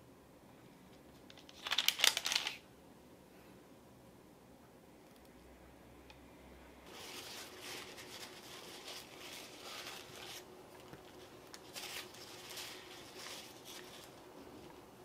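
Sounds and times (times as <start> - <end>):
paper towel rustling and crinkling: 6.8 - 14.8.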